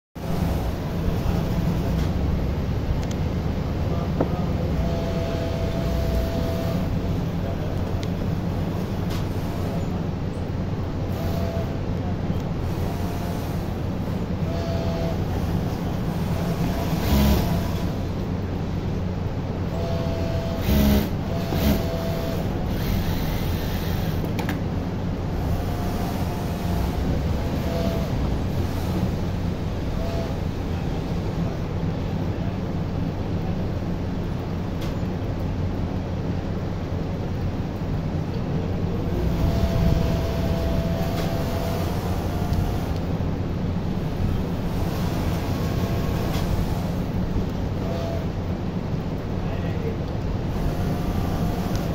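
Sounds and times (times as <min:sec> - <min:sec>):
industrial sewing machines running: 0:00.2 - 0:02.8, 0:03.7 - 0:07.6, 0:11.1 - 0:11.8, 0:12.6 - 0:18.2, 0:19.8 - 0:24.3, 0:25.3 - 0:30.8, 0:39.0 - 0:43.0, 0:44.0 - 0:48.3, 0:50.4 - 0:51.9
faint steady whine: 0:00.2 - 0:51.9
sewing machines din: 0:16.3 - 0:17.9, 0:19.8 - 0:24.2, 0:39.0 - 0:42.9
sewing machine motor whining: 0:16.4 - 0:17.9, 0:19.8 - 0:24.2.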